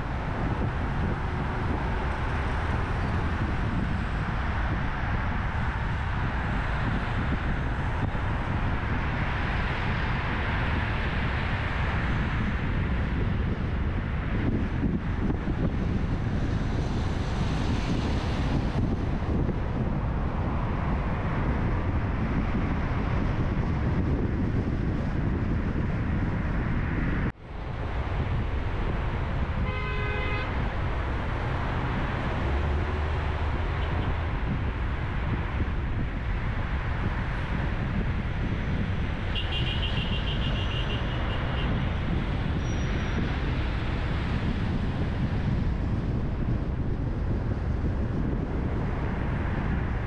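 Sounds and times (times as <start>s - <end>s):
car and traffic road noise: 0.0s - 50.0s
wind on microphone: 0.0s - 50.0s
car horn toot: 29.6s - 30.6s, 39.3s - 41.8s.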